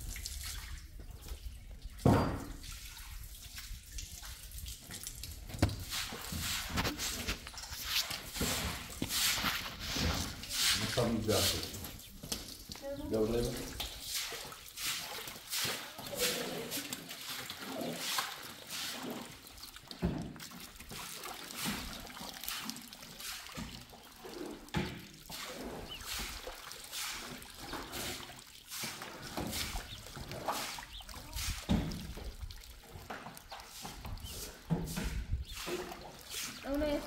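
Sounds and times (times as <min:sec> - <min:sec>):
water running from hose: 0:00.0 - 0:37.0
broom swishing on wet concrete: 0:05.8 - 0:19.4, 0:21.1 - 0:23.7, 0:25.3 - 0:32.3, 0:33.2 - 0:37.0.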